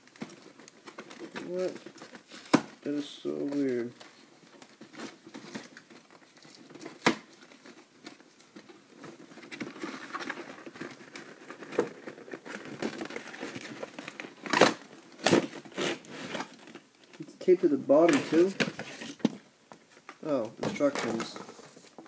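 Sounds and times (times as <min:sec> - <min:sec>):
cardboard rustling and scraping: 0:00.1 - 0:22.0
packing tape cut and pulled: 0:14.4 - 0:16.8.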